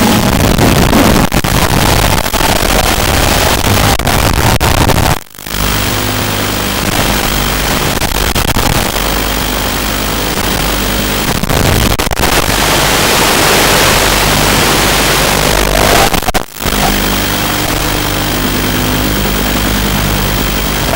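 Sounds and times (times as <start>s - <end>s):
video static hiss: 0.0s - 20.9s
faint drone motors: 14.0s - 20.9s.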